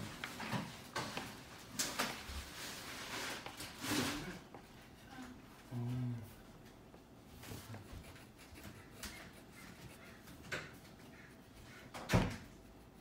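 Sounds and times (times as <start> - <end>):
crayon rubbing on paper: 7.5 - 10.4.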